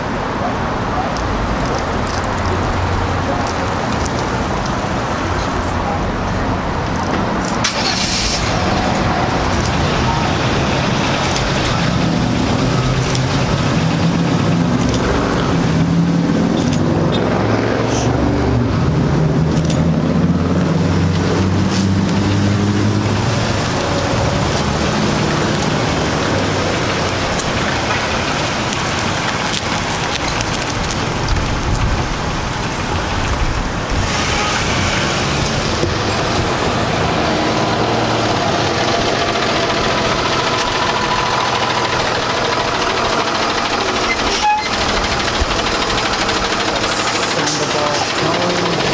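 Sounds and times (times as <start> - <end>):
vehicle engine low hum: 0.0 - 48.9
vehicles passing: 0.0 - 48.9.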